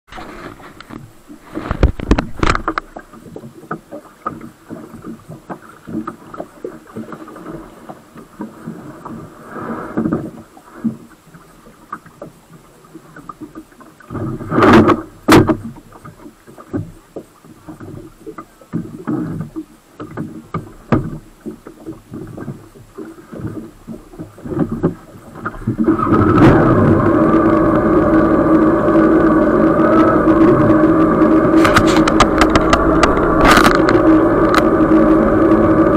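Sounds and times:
water splashing on camera: 0:00.1 - 0:35.9
waverunner engine: 0:26.1 - 0:35.9
loud thumps: 0:31.5 - 0:34.6.

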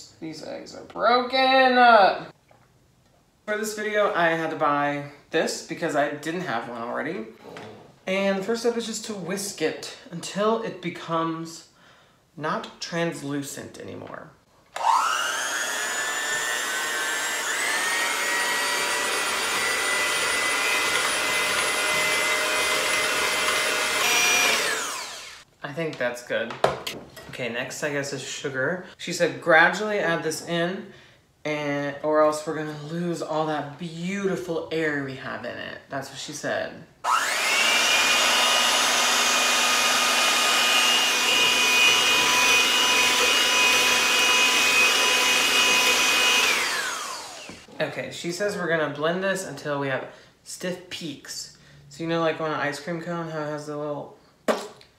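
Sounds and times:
electric hand mixer whine: 0:14.8 - 0:25.4, 0:37.1 - 0:47.7.

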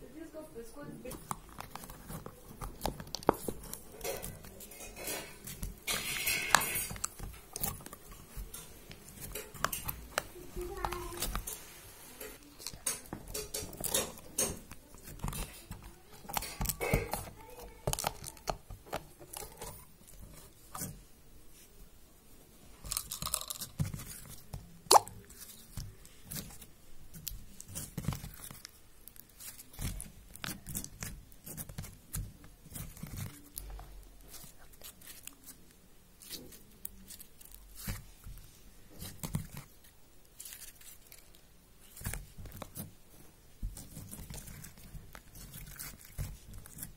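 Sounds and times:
slime crackling and plopping: 0:24.8 - 0:25.4.

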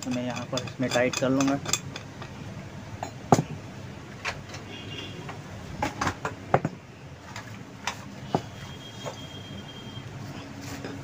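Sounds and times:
pipe vise metal clicks and knocks: 0:00.0 - 0:02.4.

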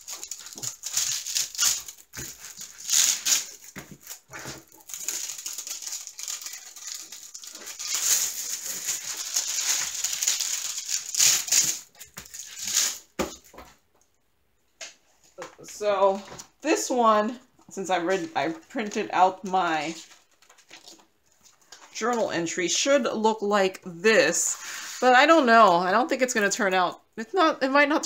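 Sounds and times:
plastic film crinkling: 0:00.0 - 0:13.6, 0:19.8 - 0:21.9.

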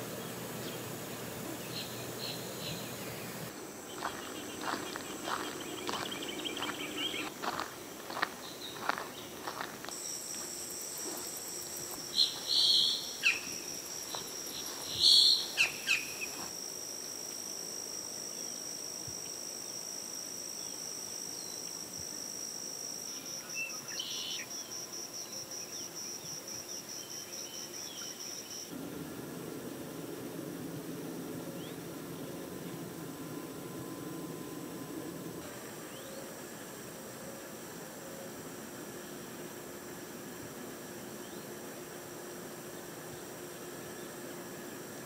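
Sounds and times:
insects trilling: 0:00.0 - 0:45.0
bird calls: 0:00.6 - 0:07.3, 0:12.1 - 0:13.6, 0:14.6 - 0:16.4.

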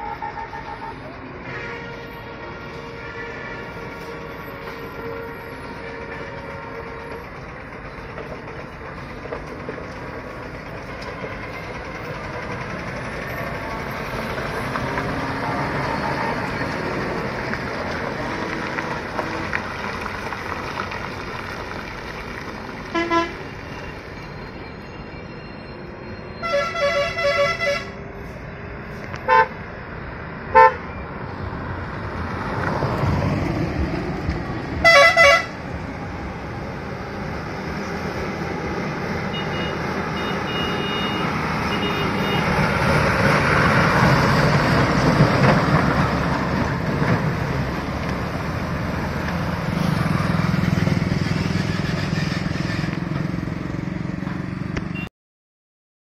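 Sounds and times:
vehicle horn tooting: 0:00.0 - 0:07.2, 0:22.9 - 0:23.5, 0:26.4 - 0:28.0, 0:29.3 - 0:29.5, 0:30.6 - 0:30.9, 0:34.8 - 0:35.5, 0:39.3 - 0:42.5
diesel truck passing: 0:00.0 - 0:55.1.

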